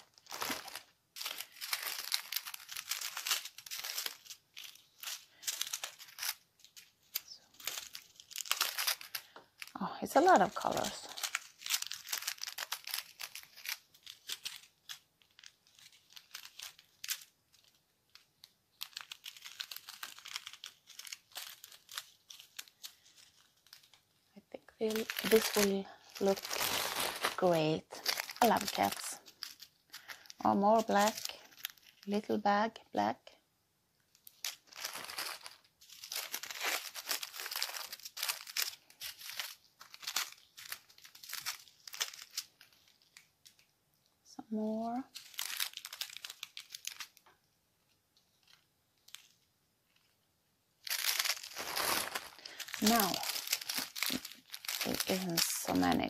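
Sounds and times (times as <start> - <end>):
plastic bags crinkling: 0.0 - 32.7, 34.0 - 43.7, 44.5 - 50.2, 50.8 - 56.0.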